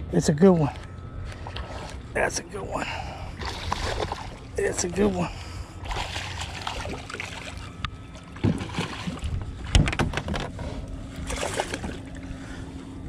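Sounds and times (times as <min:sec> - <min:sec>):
low steady hum: 0:00.0 - 0:13.0
fish splashing: 0:03.4 - 0:04.5, 0:05.8 - 0:09.4, 0:11.2 - 0:12.2
knocks against boat: 0:09.7 - 0:10.6.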